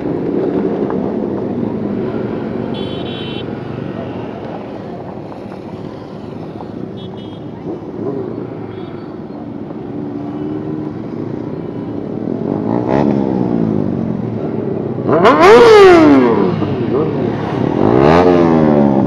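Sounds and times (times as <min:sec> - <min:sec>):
motorcycle engines revving: 0:00.0 - 0:19.0.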